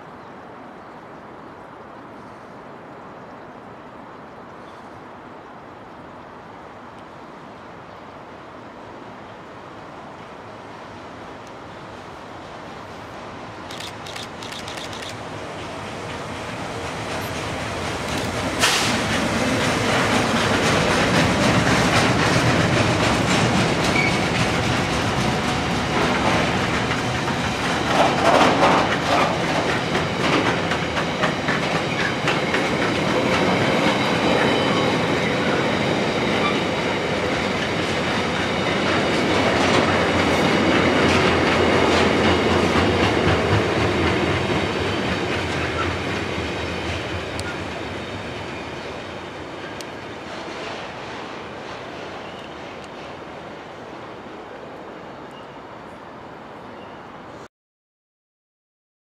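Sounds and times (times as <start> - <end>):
locomotive passing: 12.6 - 54.3
train wheels clacking on rails: 13.7 - 53.2.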